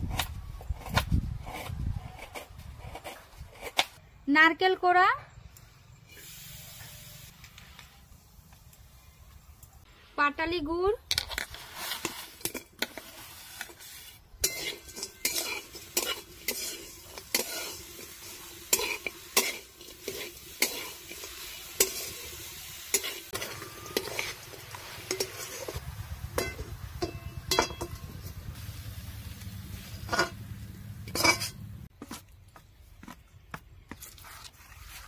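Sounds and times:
metal spatula scraping a wok: 0:11.3 - 0:28.8, 0:29.7 - 0:31.6.

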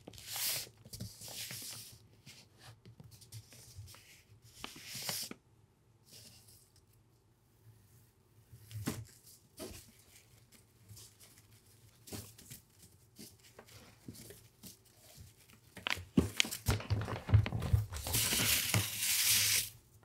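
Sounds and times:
paper rustling: 0:03.1 - 0:05.4, 0:08.6 - 0:19.8
cord sliding over paper: 0:16.3 - 0:19.7.

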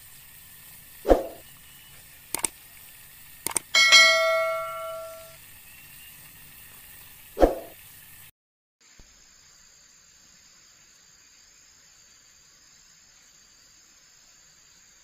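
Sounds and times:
bright bell ding: 0:03.8 - 0:05.4.

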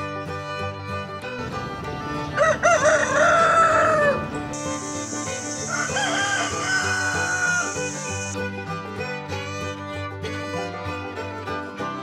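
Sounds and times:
background music: 0:00.0 - 0:12.0
rooster crowing: 0:02.4 - 0:08.4.

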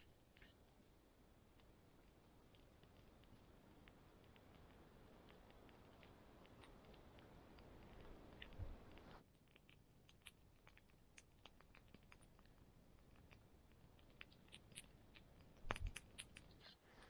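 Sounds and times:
campfire crackling: 0:00.0 - 0:09.2.

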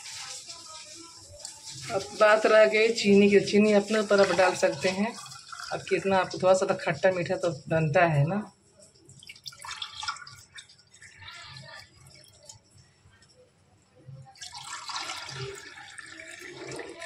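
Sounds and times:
liquid pouring into glass: 0:05.1 - 0:06.0, 0:09.1 - 0:11.2, 0:14.4 - 0:17.0.

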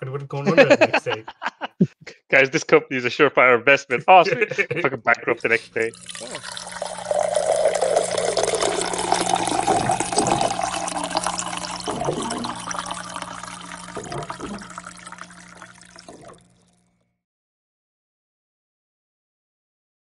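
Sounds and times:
rushing gurgling water: 0:05.9 - 0:16.5.

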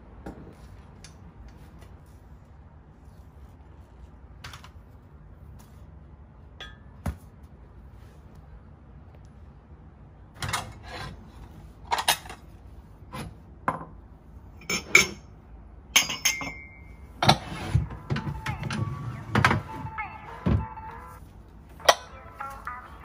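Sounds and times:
ceramic plates clinking: 0:16.0 - 0:19.9.

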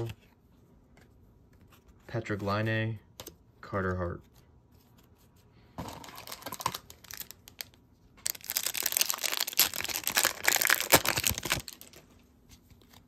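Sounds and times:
wrapper tearing and crinkling: 0:06.0 - 0:12.0.

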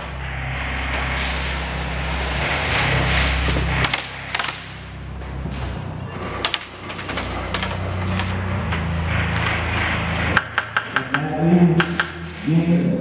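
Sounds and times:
steady low hum: 0:00.0 - 0:13.0
man's voice: 0:11.0 - 0:13.0.

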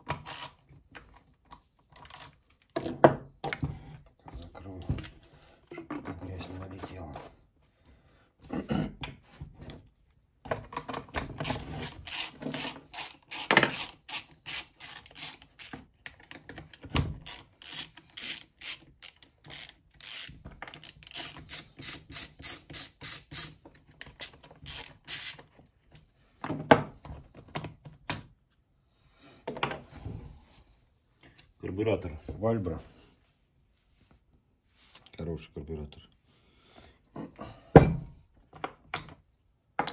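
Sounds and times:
socket ratchet clicking: 0:17.2 - 0:23.6.

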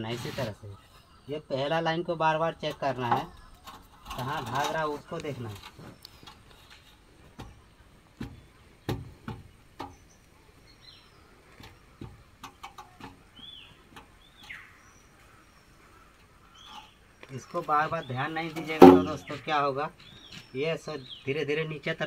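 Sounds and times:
bird chirping: 0:00.7 - 0:21.9
roof tiles knocking and clicking: 0:07.3 - 0:10.0, 0:11.6 - 0:13.3, 0:18.6 - 0:19.3.

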